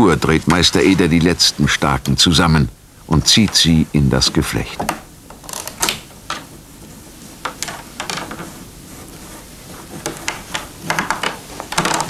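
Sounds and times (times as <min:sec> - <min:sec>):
willow rods crackling and rustling: 0:00.0 - 0:12.0.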